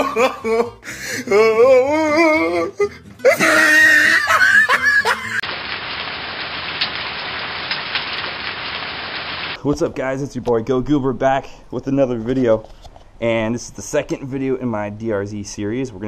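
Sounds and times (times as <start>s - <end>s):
loud laughter: 0.0s - 0.8s, 3.2s - 5.4s
man's sing-song voice: 1.2s - 3.6s.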